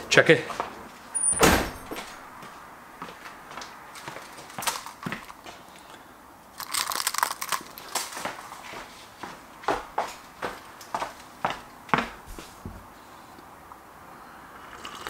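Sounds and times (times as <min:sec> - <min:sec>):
footsteps: 0:00.4 - 0:05.6, 0:07.8 - 0:12.9
keys rattling: 0:01.2 - 0:02.2, 0:04.3 - 0:05.4, 0:06.6 - 0:08.1.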